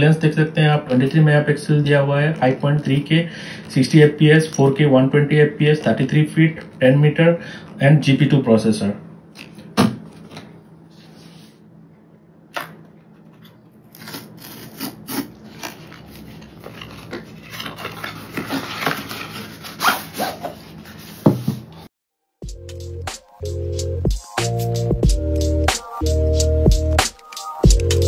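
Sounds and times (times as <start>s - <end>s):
packaging rubbing and scraping: 14.0s - 21.3s.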